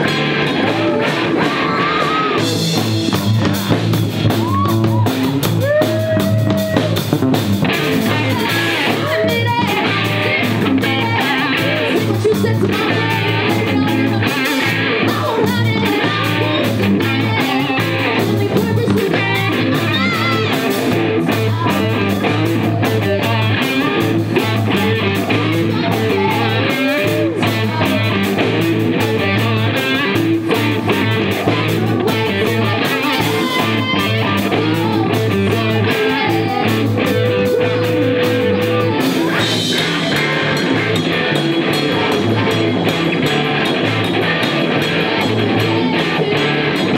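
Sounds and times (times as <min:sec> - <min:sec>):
bass guitar: 0:00.0 - 0:46.9
drum kit: 0:00.0 - 0:46.9
electric guitar: 0:00.0 - 0:46.9
woman singing: 0:08.0 - 0:39.6.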